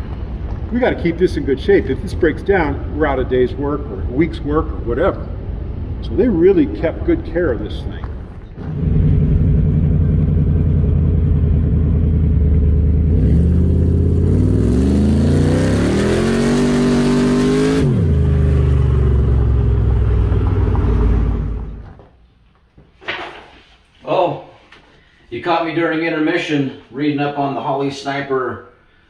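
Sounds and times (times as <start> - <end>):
car engine revving: 8.6 - 22.0.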